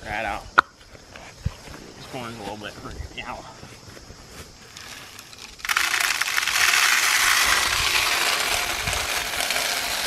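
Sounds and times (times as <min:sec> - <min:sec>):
corn kernels pouring into a pipe: 0:04.8 - 0:10.0.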